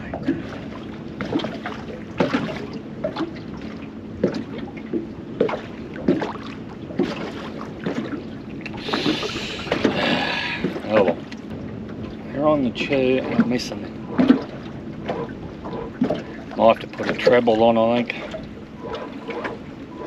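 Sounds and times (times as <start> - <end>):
small waves slapping hull: 0.0 - 20.0.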